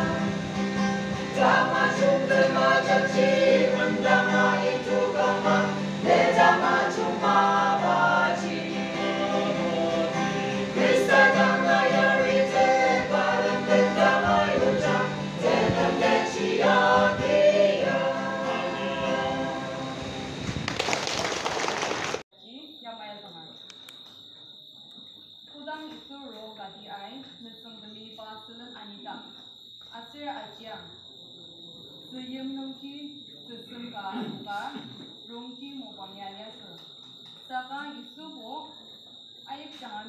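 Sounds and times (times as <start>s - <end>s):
group singing a gospel hymn: 0.0s - 20.6s.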